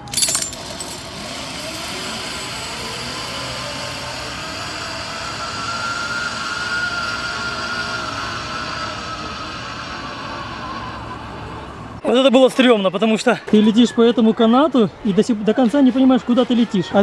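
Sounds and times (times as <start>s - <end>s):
pulley rolling along steel cable: 0.0s - 11.0s.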